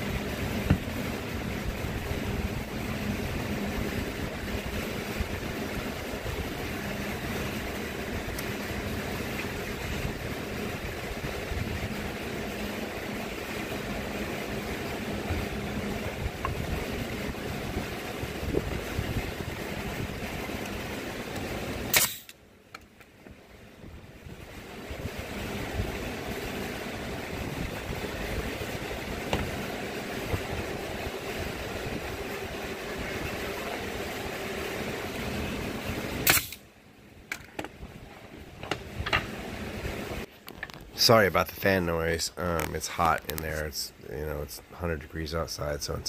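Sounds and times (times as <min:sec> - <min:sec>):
shop fans rushing: 0:00.0 - 0:22.0, 0:23.2 - 0:36.4, 0:37.1 - 0:46.0
pneumatic nailer shot: 0:21.9 - 0:22.4, 0:36.2 - 0:36.7.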